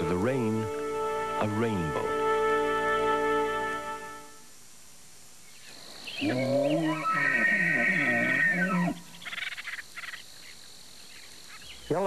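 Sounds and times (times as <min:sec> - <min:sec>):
elk bugling: 0:05.8 - 0:10.2.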